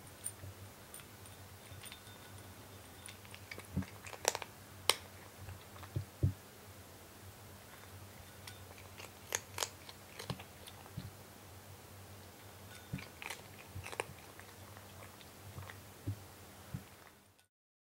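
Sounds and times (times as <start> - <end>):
cat crunching dry kibble: 3.0 - 6.0, 7.7 - 11.2, 12.3 - 15.8.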